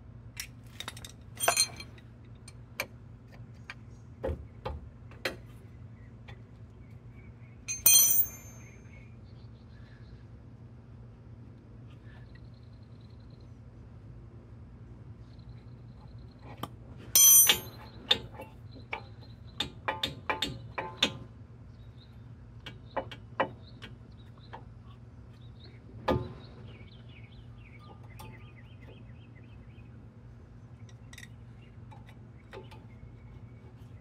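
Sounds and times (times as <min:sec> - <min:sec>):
metallic clatter of hand tools: 0:00.4 - 0:02.6, 0:07.7 - 0:08.8, 0:17.2 - 0:19.0.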